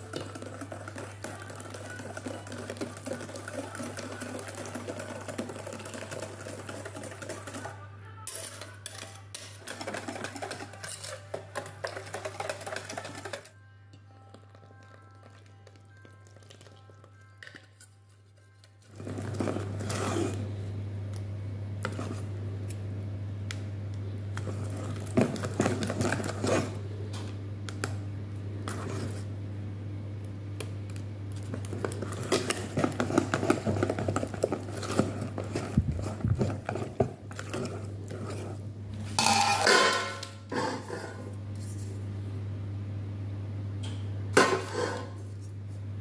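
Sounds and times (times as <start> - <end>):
whisk clicking in metal bowl: 0.0 - 13.5
metal pan clattering: 39.2 - 41.1.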